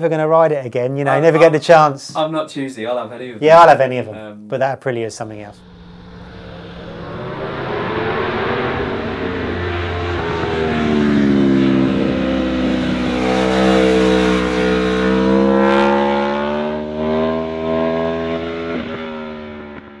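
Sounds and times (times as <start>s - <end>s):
motorcycle engine at high revs: 7.6s - 20.0s.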